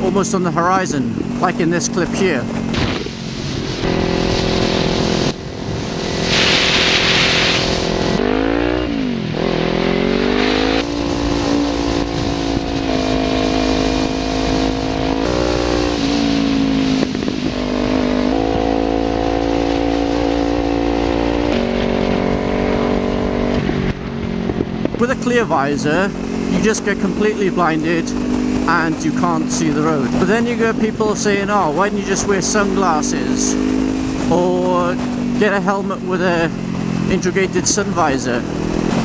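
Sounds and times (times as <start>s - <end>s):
motorcycle engine running: 0.0s - 39.0s
wind hiss: 2.7s - 8.2s.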